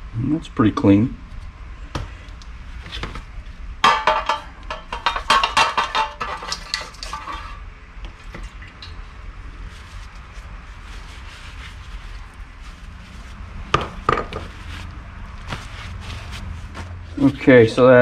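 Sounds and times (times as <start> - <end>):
brush scrubbing metal: 4.0 - 7.6, 9.6 - 17.9.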